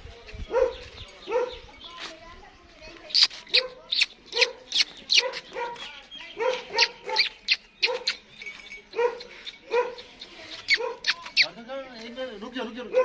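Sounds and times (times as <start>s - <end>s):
dog barking: 0.5s - 1.6s, 3.6s - 4.6s, 5.2s - 5.8s, 6.4s - 8.2s, 8.9s - 10.1s, 10.7s - 11.2s.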